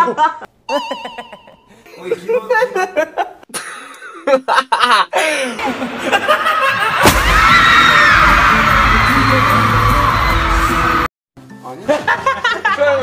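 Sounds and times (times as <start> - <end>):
crowd screaming: 5.7 - 11.1
loud bass-heavy concert music: 7.3 - 11.1
man's voice: 7.8 - 11.1.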